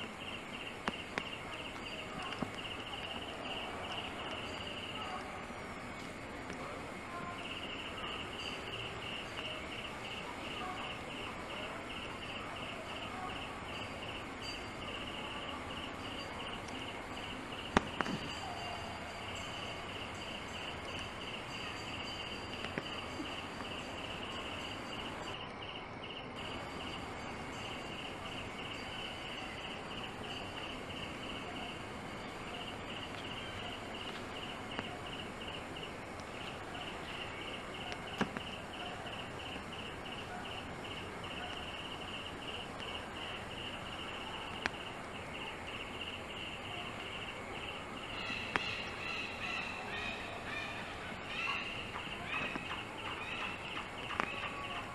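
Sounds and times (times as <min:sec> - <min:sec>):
insects chirping: 0:00.0 - 0:54.9
outdoor background hiss: 0:00.0 - 0:54.9
faint clicks: 0:00.2 - 0:05.3, 0:32.5 - 0:44.9, 0:52.0 - 0:54.9
animal call: 0:48.0 - 0:54.9.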